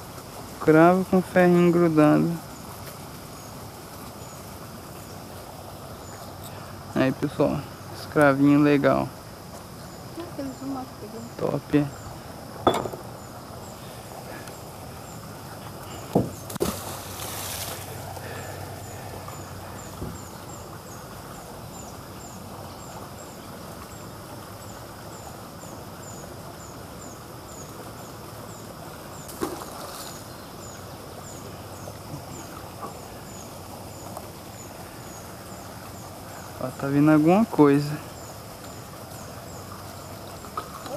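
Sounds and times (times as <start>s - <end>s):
insect chirping: 0.0s - 40.9s
low outdoor background: 0.0s - 40.9s
sharp knocks: 12.6s - 13.1s.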